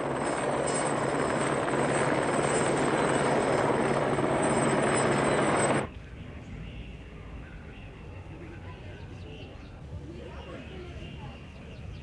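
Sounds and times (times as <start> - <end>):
steady machine noise: 0.0 - 5.9.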